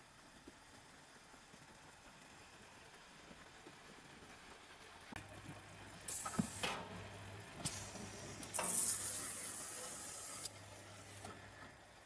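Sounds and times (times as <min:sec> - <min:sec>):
carton sealer motor humming: 0:05.2 - 0:11.9.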